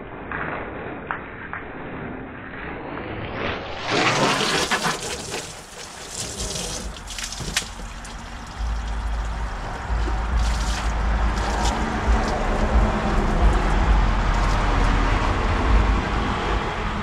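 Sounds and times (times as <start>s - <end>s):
soapy water splashing and dripping: 4.0s - 15.2s
wash mitt scrubbing car: 4.0s - 15.2s
water running onto ground: 4.2s - 15.2s
low rumble: 6.4s - 17.0s.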